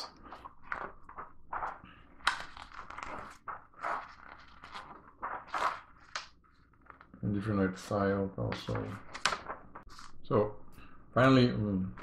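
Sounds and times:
pages being turned: 0:00.0 - 0:07.2, 0:08.4 - 0:10.2.

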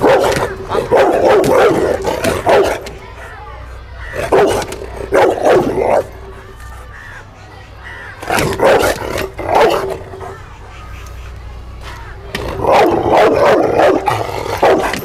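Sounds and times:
dog barking deeply: 0:00.0 - 0:03.0, 0:04.0 - 0:06.2, 0:08.3 - 0:10.4, 0:12.4 - 0:15.0
dog growling: 0:00.0 - 0:03.4, 0:04.0 - 0:07.1, 0:07.9 - 0:11.4, 0:12.4 - 0:15.0.

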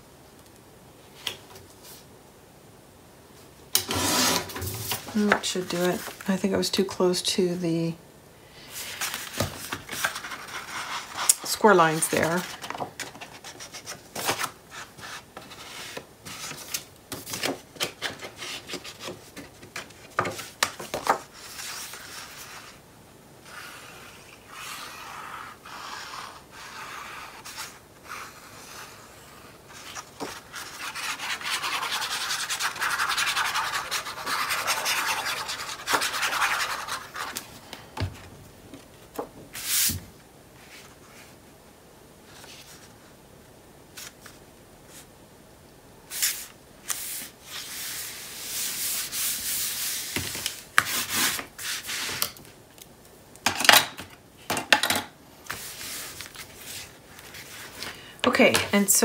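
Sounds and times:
hands rubbing paper: 0:23.4 - 0:37.4.

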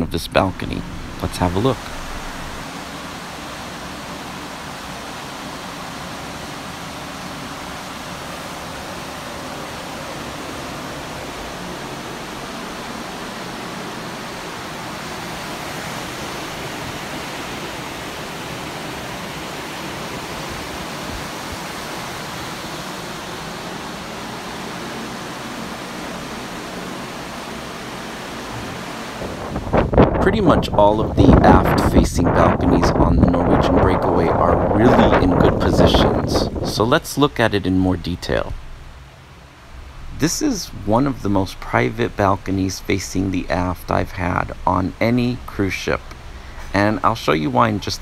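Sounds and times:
wind rushing: 0:00.0 - 0:05.0, 0:27.6 - 0:38.9
wind on microphone: 0:00.0 - 0:08.1, 0:19.9 - 0:21.9, 0:28.5 - 0:38.9
churning wake water: 0:00.0 - 0:48.0.

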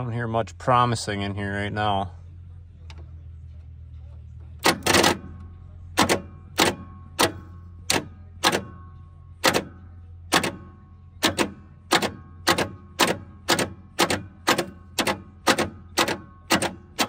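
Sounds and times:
starter metallic clunks: 0:04.4 - 0:17.0.

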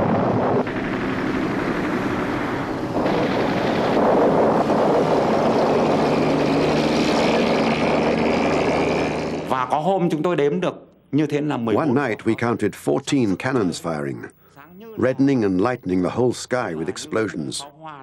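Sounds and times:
faint rising whine: 0:00.0 - 0:09.5
engine drone: 0:00.0 - 0:09.8.

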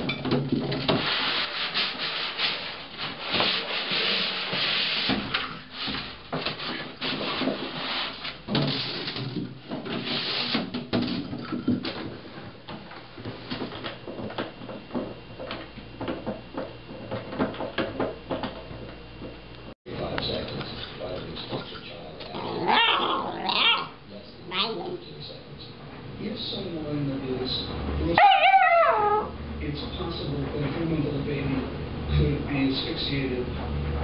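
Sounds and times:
plastic scraping on wood floor: 0:00.4 - 0:11.3.

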